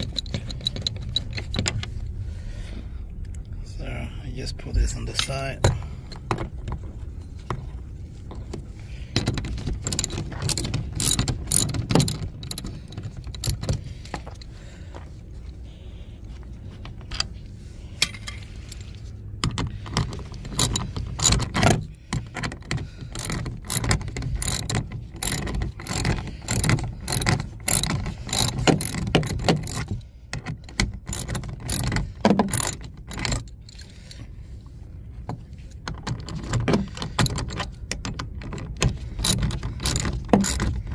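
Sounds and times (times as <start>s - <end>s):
hand ratchet clicking: 0.0s - 1.9s, 9.2s - 13.9s, 19.4s - 34.2s, 36.1s - 40.9s.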